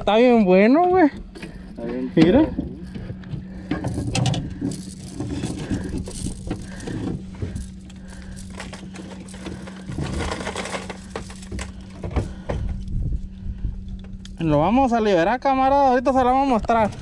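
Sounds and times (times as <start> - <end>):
steady low hum: 0.0 - 17.0
gear rattling on metal deck: 1.2 - 12.2.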